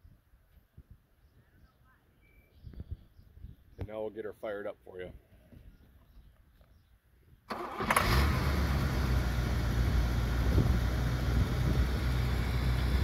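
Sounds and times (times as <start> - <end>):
car engine cranking: 7.5 - 10.5
car engine idling: 7.6 - 13.0.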